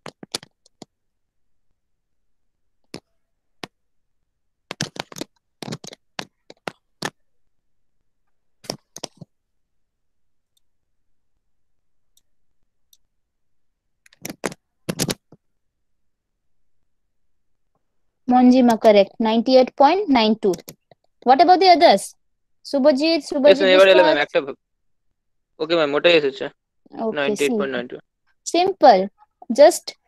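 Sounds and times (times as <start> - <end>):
computer mouse clicking: 8.6 - 9.3, 14.0 - 15.4, 18.6 - 19.1, 20.4 - 21.2.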